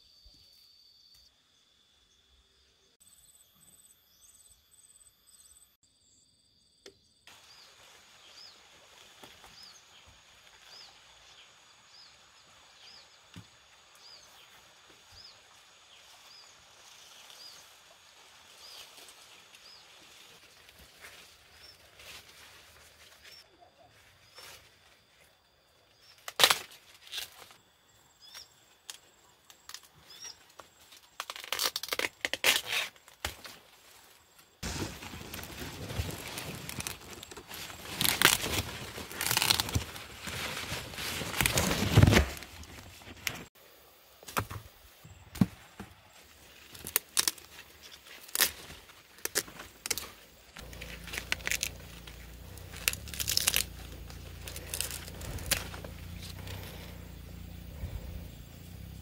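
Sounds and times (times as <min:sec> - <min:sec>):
corn leaves rustling: 0:07.3 - 0:25.4, 0:26.0 - 0:27.6, 0:28.3 - 0:43.5, 0:44.3 - 0:59.0
corn ears snapping off: 0:26.1 - 0:27.6, 0:28.3 - 0:33.6, 0:34.6 - 0:43.5, 0:46.6 - 0:56.7.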